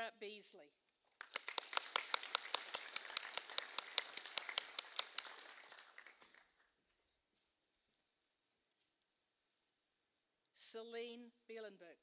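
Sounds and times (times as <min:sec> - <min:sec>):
audience applauding: 0:01.2 - 0:06.7.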